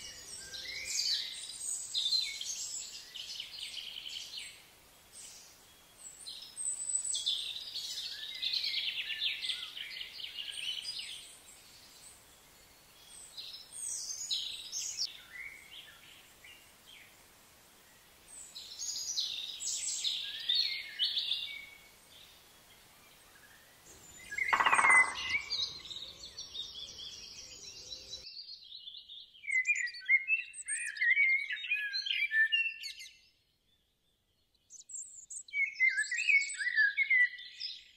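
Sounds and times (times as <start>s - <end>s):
faint hiss: 0.0s - 24.4s
bird twittering: 23.9s - 28.2s
birds chirping and singing: 23.9s - 33.1s.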